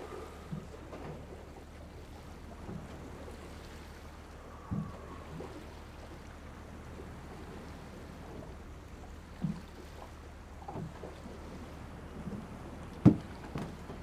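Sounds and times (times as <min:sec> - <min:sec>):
boat engine humming: 0:00.0 - 0:14.0
dull knocks: 0:13.0 - 0:13.7.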